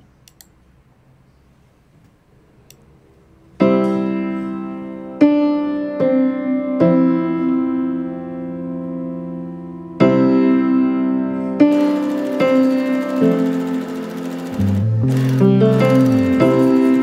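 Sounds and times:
slow piano chords: 3.5s - 17.0s.

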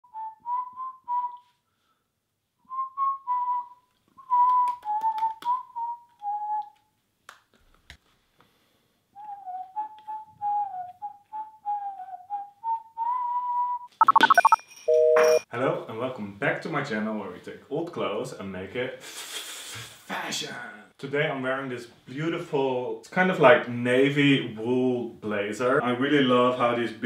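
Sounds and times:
person whistling a tune: 0.0s - 1.6s, 2.6s - 6.8s, 9.2s - 14.5s.

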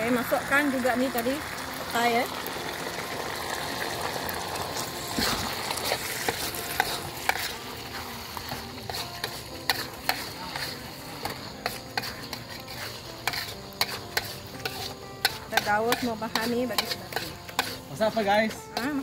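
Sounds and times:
beans sizzling in chili paste: 0.0s - 19.0s
metal spatula scraping a wok: 4.3s - 19.0s
spatula clicking against pan: 8.4s - 17.8s.

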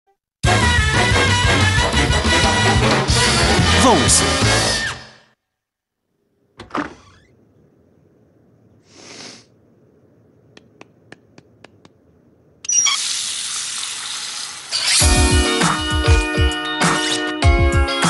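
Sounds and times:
short hiss: 8.8s - 9.6s.

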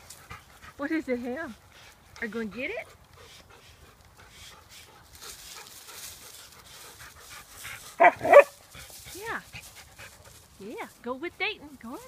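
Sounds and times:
dog panting: 0.0s - 10.7s
dog barking loudly: 8.0s - 8.6s.

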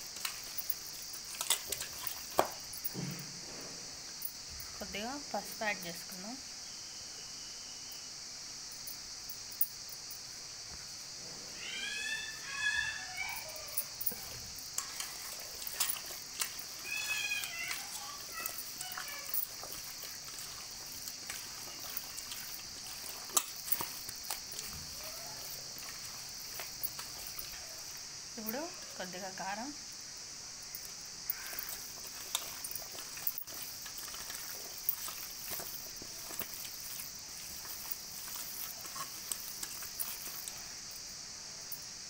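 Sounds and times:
hands mixing chicken in steel bowl: 0.0s - 3.0s, 11.6s - 29.8s, 30.8s - 40.8s
crickets chirring: 0.0s - 42.0s
high falling calls: 11.5s - 29.1s, 30.7s - 40.8s.

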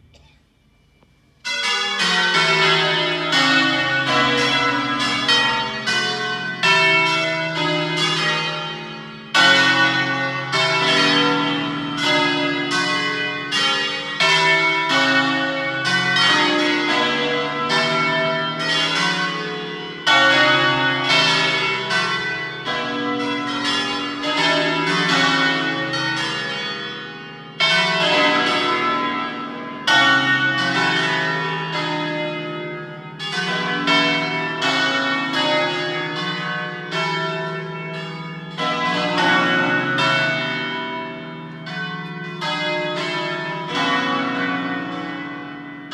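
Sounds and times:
church bells ringing melody: 0.0s - 45.9s.

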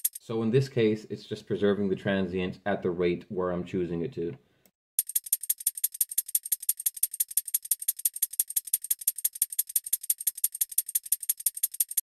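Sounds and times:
fast shaker loop: 0.0s - 0.3s, 5.0s - 12.0s.

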